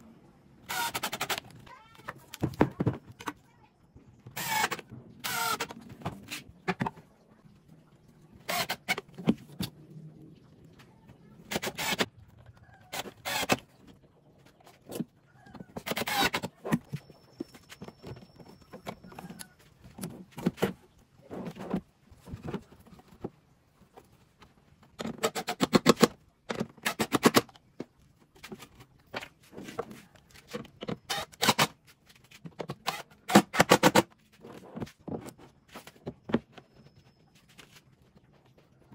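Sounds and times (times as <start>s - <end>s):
impact driver driving screws: 0.7s - 1.4s, 4.4s - 5.8s, 11.5s - 12.1s, 15.8s - 16.5s.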